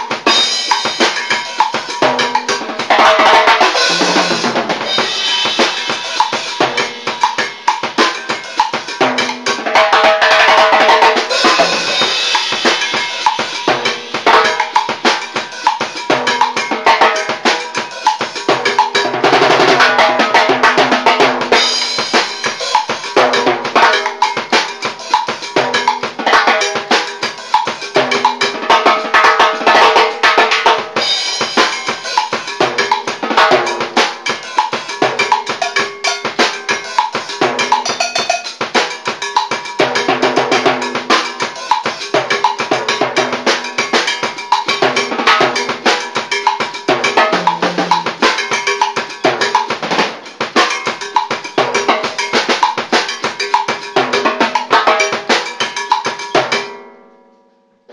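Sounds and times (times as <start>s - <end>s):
timbales and drum kit: 0.0s - 56.9s
cowbell pattern: 0.0s - 57.1s
cymbals ringing: 0.0s - 57.1s.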